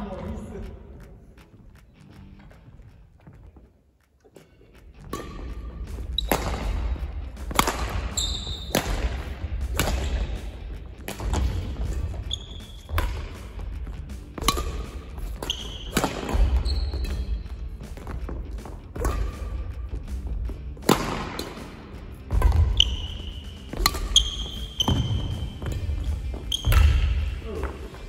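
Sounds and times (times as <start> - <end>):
background music: 0.0 - 28.0
shoes squeaking on court floor: 0.0 - 28.0
racket hitting shuttlecock: 4.3 - 28.0.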